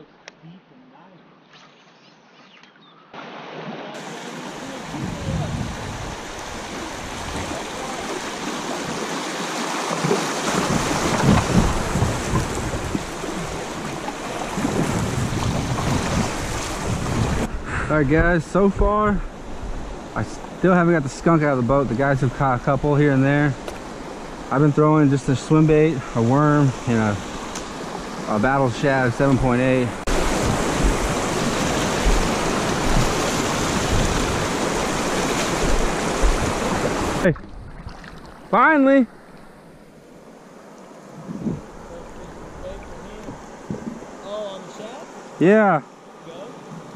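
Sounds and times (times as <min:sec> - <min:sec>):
river rushing and splashing: 0:03.2 - 0:17.6, 0:18.5 - 0:46.9
wind rumble on microphone: 0:04.9 - 0:07.7, 0:10.5 - 0:20.0, 0:29.9 - 0:38.0, 0:41.2 - 0:44.0.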